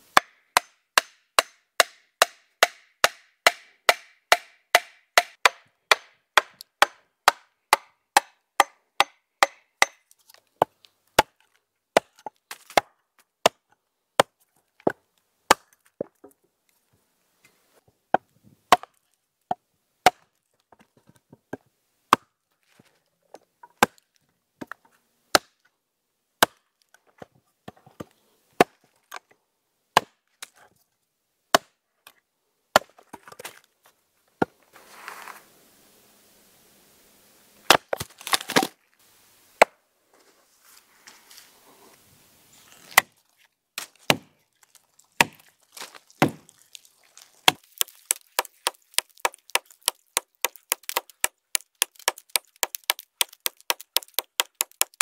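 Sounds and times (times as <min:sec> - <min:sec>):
axe chopping wood: 0:00.2 - 0:10.0, 0:10.6 - 0:11.4, 0:12.0 - 0:13.6, 0:15.5 - 0:15.8, 0:18.1 - 0:19.0, 0:20.0 - 0:20.3, 0:23.8 - 0:24.0, 0:25.3 - 0:25.6, 0:26.4 - 0:26.6, 0:30.0 - 0:30.2, 0:31.5 - 0:31.7, 0:32.7 - 0:33.4, 0:37.7 - 0:38.7, 0:42.9 - 0:43.2, 0:43.8 - 0:44.4, 0:45.2 - 0:46.6, 0:47.4 - 0:55.0.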